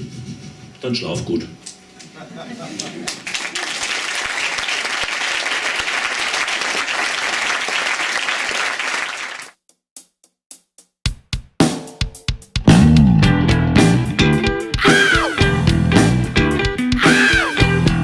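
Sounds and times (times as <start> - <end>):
audience applauding: 2.8 - 9.6.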